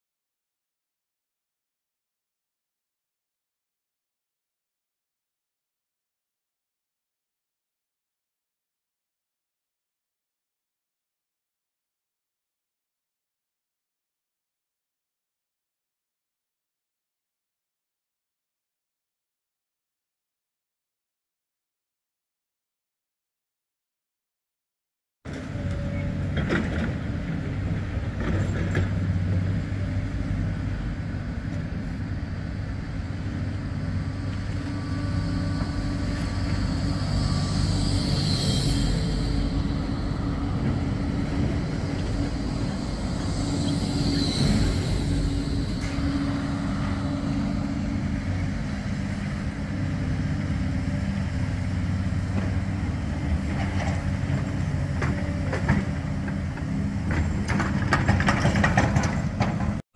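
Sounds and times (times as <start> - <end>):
tram passing at low speed: 25.3 - 59.8.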